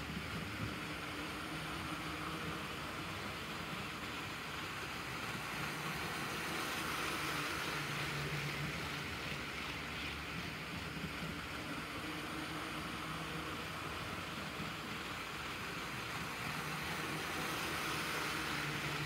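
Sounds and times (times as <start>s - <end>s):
model train rattling on rails: 0.0s - 19.0s.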